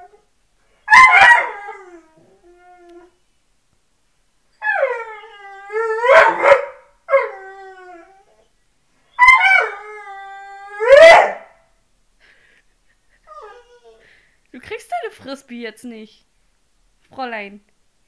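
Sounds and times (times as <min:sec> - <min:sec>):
dog howling and whining: 0:00.9 - 0:03.2, 0:04.5 - 0:08.5, 0:09.1 - 0:11.6, 0:13.3 - 0:14.0.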